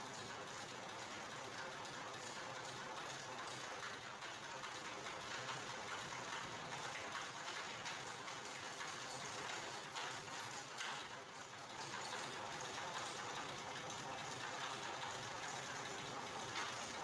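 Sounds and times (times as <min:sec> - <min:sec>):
faint ticks of rollers and gears: 0:00.0 - 0:17.0.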